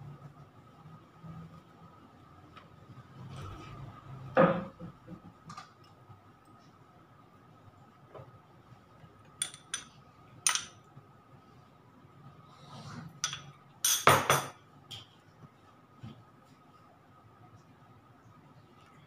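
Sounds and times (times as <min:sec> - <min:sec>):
metal spoon clinking on glass: 0:09.4 - 0:10.8, 0:13.2 - 0:14.6.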